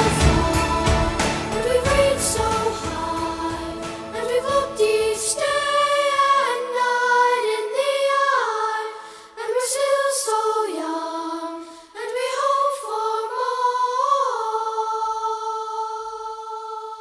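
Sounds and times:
low musical accompaniment: 0.0s - 5.8s
choir singing held notes: 0.0s - 17.0s.

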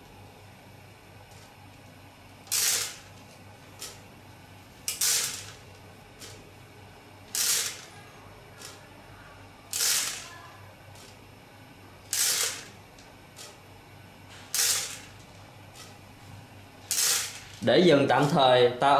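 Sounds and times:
tablets clattering in drum: 9.7s - 10.3s, 16.9s - 17.6s.

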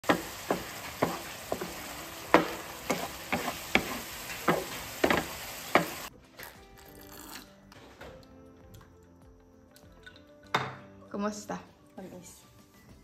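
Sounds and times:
frying sizzle: 0.0s - 6.1s
spatula scraping frying pan: 0.0s - 6.1s.

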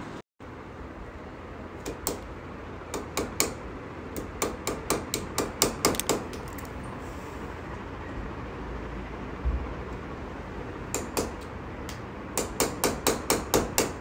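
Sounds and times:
light hammer tapping nails: 4.2s - 6.5s.

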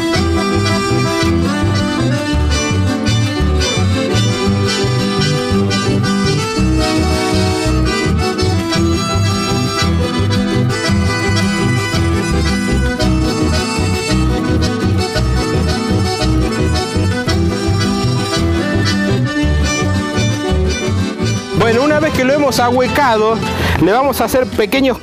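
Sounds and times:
steady bass beat: 0.0s - 24.9s
accordion music: 0.0s - 25.0s.

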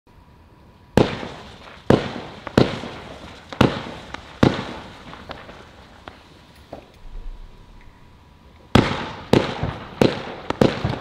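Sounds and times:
firework shots: 0.9s - 7.8s, 8.7s - 11.0s
faint firework pops: 1.0s - 7.2s, 8.8s - 11.0s.

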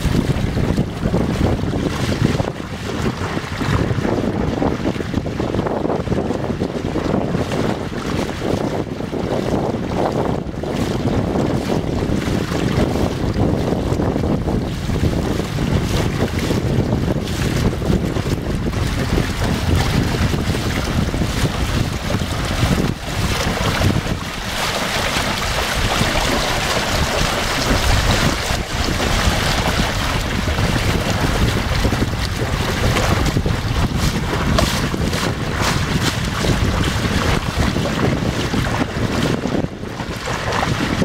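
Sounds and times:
water rushing along hull: 0.0s - 41.0s
wind buffeting microphone: 0.0s - 41.0s.

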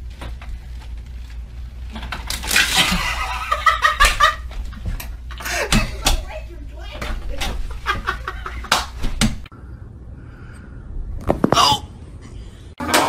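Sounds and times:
low steady hum: 0.0s - 12.8s
person giggling and laughing: 7.7s - 8.9s.

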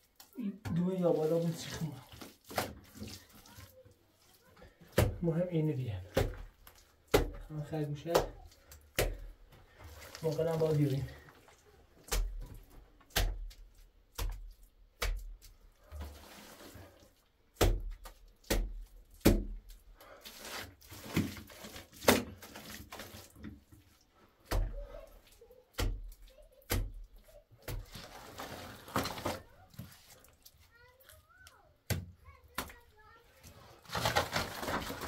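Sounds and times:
wet mud thudding onto wall: 4.7s - 9.3s, 12.0s - 16.1s, 17.5s - 23.6s, 24.4s - 25.0s, 25.7s - 29.9s.

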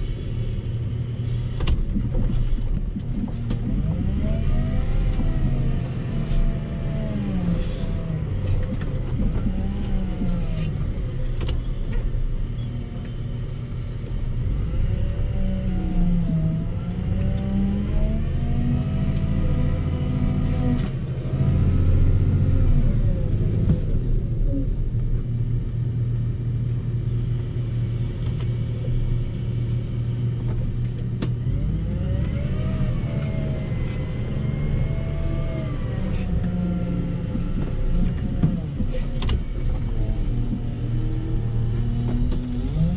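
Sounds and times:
wheel loader diesel engine under load: 0.0s - 42.9s
hydraulic whine: 31.5s - 42.9s.

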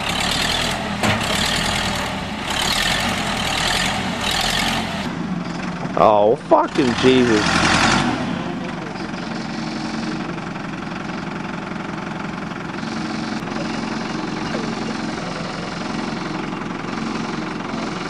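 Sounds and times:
truck engine running at low revs: 0.0s - 18.0s.

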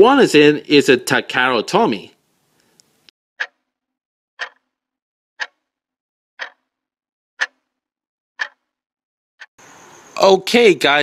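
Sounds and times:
clock ticking: 3.4s - 3.6s, 4.4s - 4.8s, 5.4s - 5.7s, 6.4s - 6.7s, 7.4s - 7.7s, 8.4s - 8.7s.

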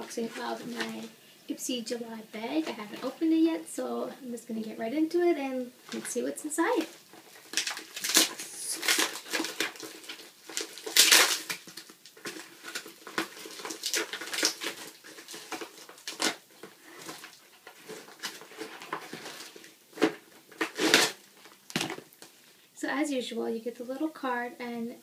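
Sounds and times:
package crinkling and tearing: 5.9s - 22.4s.

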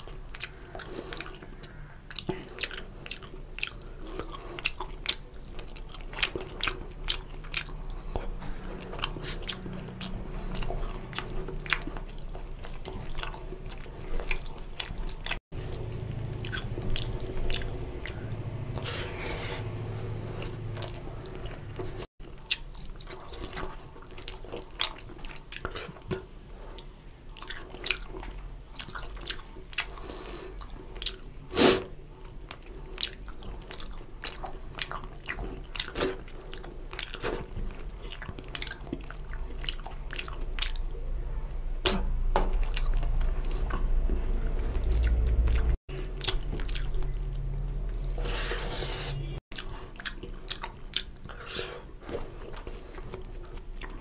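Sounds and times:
wet chewing and lip smacks: 0.0s - 18.9s, 32.2s - 41.1s, 41.8s - 48.2s, 49.5s - 54.0s.

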